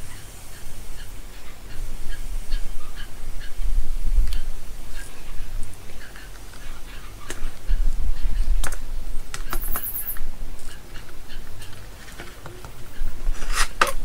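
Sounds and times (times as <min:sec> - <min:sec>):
board scraping on bench: 0:13.3 - 0:14.0.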